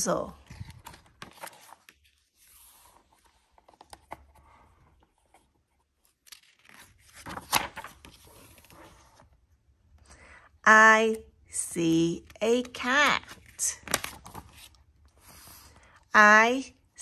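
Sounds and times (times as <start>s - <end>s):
book pages rustling: 0.3s - 9.6s, 12.3s - 16.0s.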